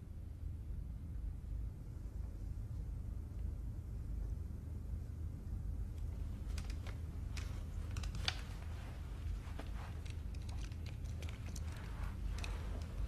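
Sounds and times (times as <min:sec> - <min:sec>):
low room rumble: 0:00.0 - 0:13.0
faint clicks and rustles: 0:05.9 - 0:13.0.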